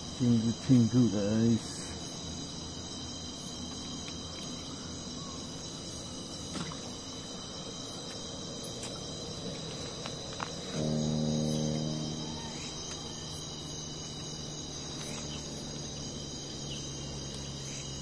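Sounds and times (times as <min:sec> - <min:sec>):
crickets and insects trilling: 0:00.0 - 0:18.0
low hum with overtones: 0:09.2 - 0:18.0.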